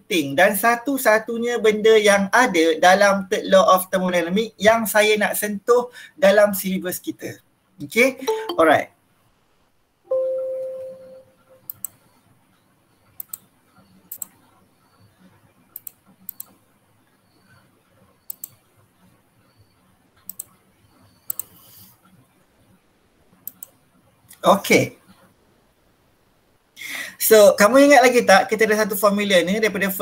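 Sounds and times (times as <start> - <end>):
computer alert chime: 8.3 - 8.8, 10.1 - 11.5
mouse clicks: 11.7 - 12.0, 13.2 - 13.5, 14.1 - 14.4, 15.7 - 16.6, 18.3 - 18.6, 20.2 - 20.6, 21.2 - 21.7, 23.4 - 23.8.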